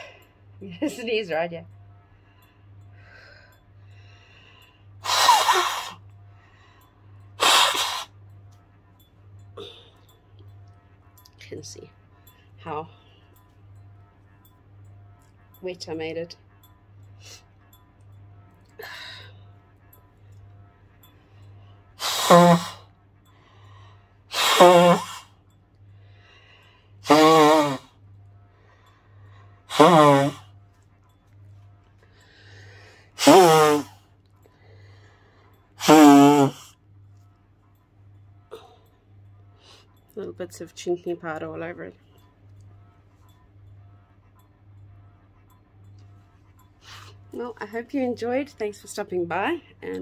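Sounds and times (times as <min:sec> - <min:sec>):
soft breaths: 0:01.8 - 0:05.0, 0:25.8 - 0:27.0, 0:30.5 - 0:33.2
woman blowing her nose: 0:05.0 - 0:06.0, 0:07.4 - 0:08.1, 0:22.0 - 0:22.8, 0:24.3 - 0:25.3, 0:27.0 - 0:27.9, 0:29.7 - 0:30.4, 0:33.2 - 0:34.0, 0:35.8 - 0:36.7.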